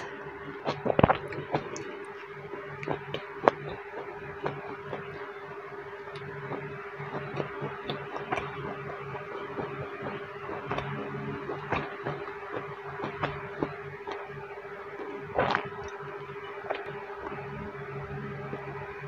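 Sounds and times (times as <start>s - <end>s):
mouth clicks: 0.0s - 5.3s
person chewing food: 0.0s - 5.3s, 6.1s - 14.4s, 15.0s - 16.0s
steady low hum: 0.0s - 19.0s.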